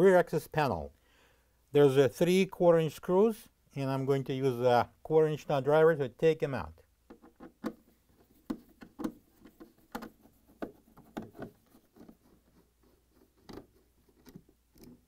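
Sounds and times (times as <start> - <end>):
nut driver clicking and scraping: 7.1 - 15.0.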